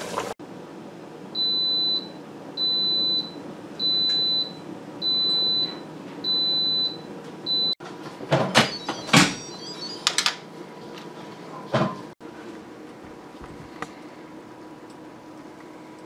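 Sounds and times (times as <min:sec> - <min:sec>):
long high beeps: 0:08.7 - 0:10.1.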